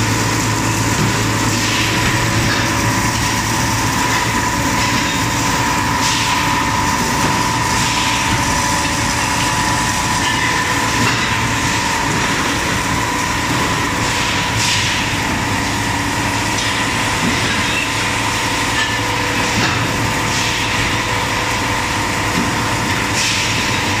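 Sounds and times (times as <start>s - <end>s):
machine din with constant tone: 0.0s - 24.0s.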